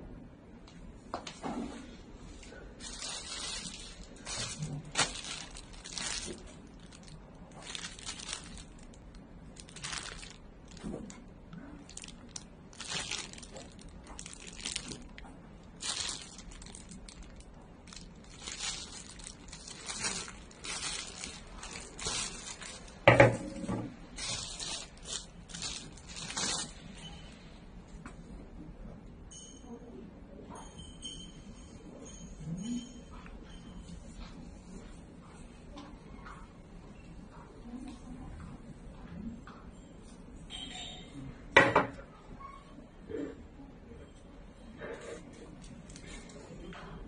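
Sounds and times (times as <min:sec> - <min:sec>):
plastic bags crinkling: 0:02.8 - 0:27.1.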